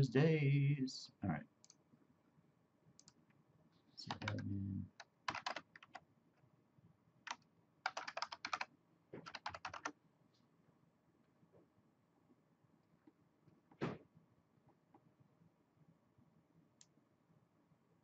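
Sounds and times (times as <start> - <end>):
keyboard typing: 4.0 - 6.0, 7.2 - 10.0.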